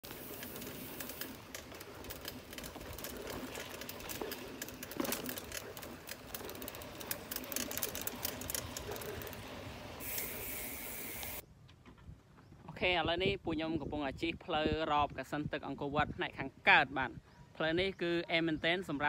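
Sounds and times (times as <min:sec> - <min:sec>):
mountain bike rolling on dirt: 0:00.0 - 0:11.5
bike parts rattling and clicking: 0:00.0 - 0:12.0.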